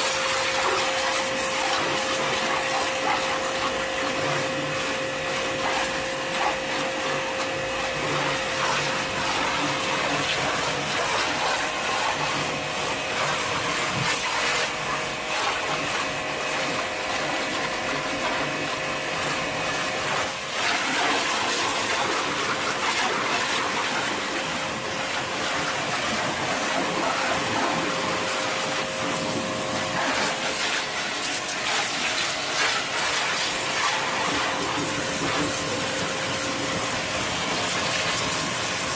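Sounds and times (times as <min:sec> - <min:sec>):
pressure washer motor humming: 0:00.0 - 0:38.9
water jet spraying on car: 0:00.0 - 0:38.9.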